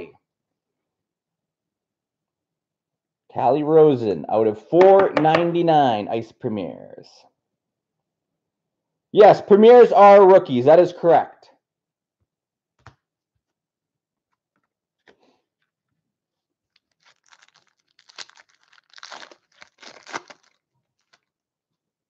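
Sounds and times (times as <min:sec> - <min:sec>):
foil wrapper tearing and crinkling: 0:16.7 - 0:21.3.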